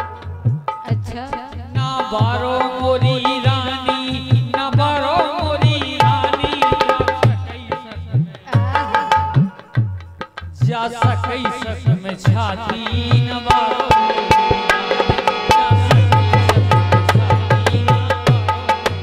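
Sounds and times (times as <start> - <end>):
harmonium melody: 0.0 - 19.0
hand drum bass strokes: 14.3 - 19.0.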